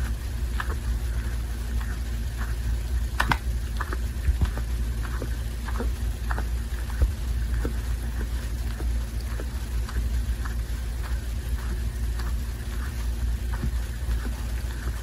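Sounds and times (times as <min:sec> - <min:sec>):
cat licking fur: 0:00.0 - 0:15.0
steady low hum: 0:00.0 - 0:15.0.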